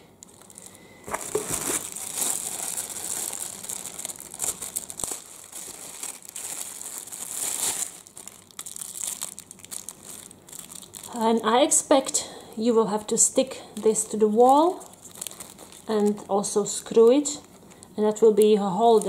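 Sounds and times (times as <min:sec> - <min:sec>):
plastic bag crinkling: 0:00.2 - 0:13.2, 0:13.8 - 0:19.0.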